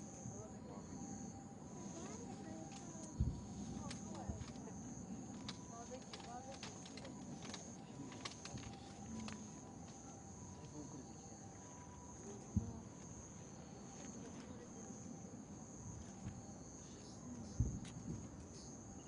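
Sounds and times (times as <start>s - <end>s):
night insects trilling: 0.0s - 19.0s.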